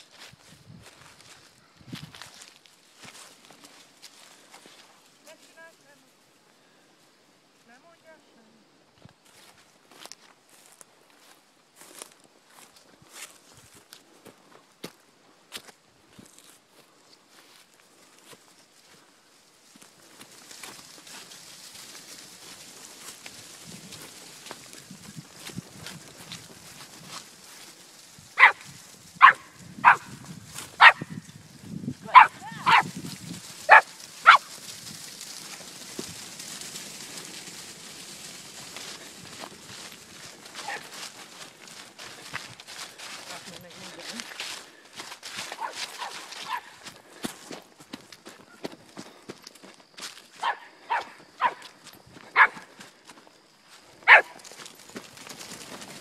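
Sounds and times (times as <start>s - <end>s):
rustles of movement through grass: 0.0s - 56.0s
puppy yapping: 28.4s - 28.6s, 29.2s - 30.1s, 30.8s - 31.1s, 32.1s - 32.9s, 33.7s - 34.5s, 54.1s - 54.4s.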